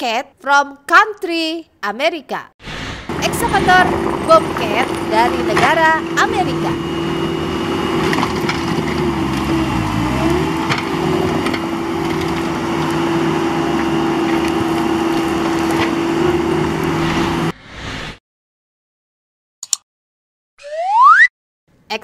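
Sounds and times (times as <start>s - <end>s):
diesel engines running: 2.9s - 17.5s.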